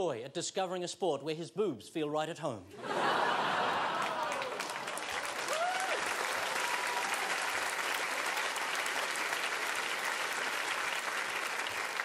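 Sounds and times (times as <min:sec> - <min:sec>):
audience applauding: 0:03.0 - 0:12.0.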